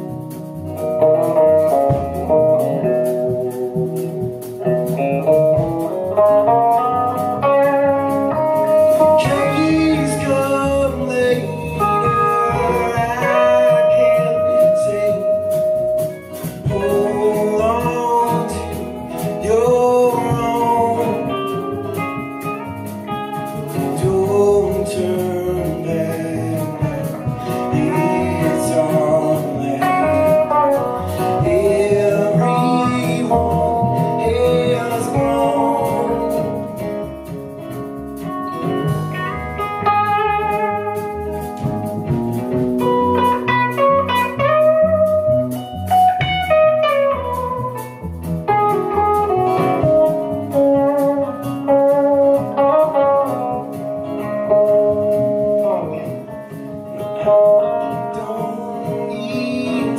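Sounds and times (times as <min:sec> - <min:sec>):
acoustic guitar strumming: 0:00.0 - 0:59.9
drum kit: 0:00.0 - 0:59.9
electric guitar: 0:00.0 - 0:59.9
upright bass: 0:00.0 - 0:59.9
man singing: 0:07.2 - 0:22.3, 0:23.6 - 0:37.1, 0:57.0 - 0:59.9.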